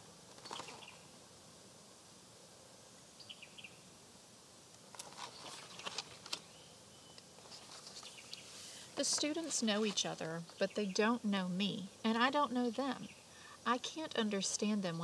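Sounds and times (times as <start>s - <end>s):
paper book page turning: 0.3s - 0.9s, 4.9s - 6.5s, 7.4s - 10.3s
bird chirps: 0.6s - 1.1s, 3.2s - 3.8s, 6.5s - 7.2s.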